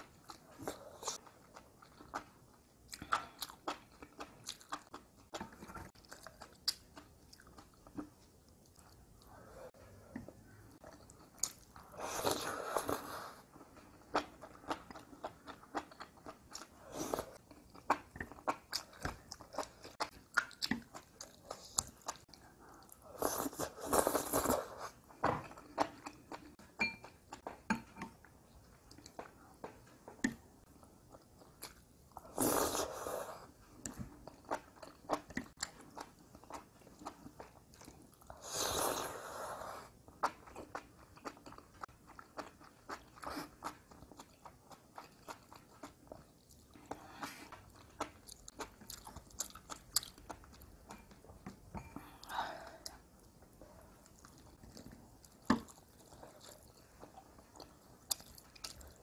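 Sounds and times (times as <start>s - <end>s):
wet chewing with clicks: 0.0s - 9.4s, 17.4s - 23.0s, 33.8s - 38.3s, 40.1s - 59.0s.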